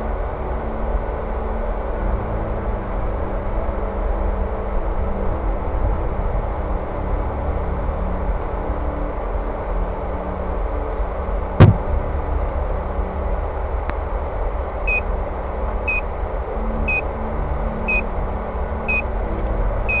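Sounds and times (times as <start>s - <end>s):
handling noise: 11.6s - 11.9s
loud thump: 11.6s - 11.9s.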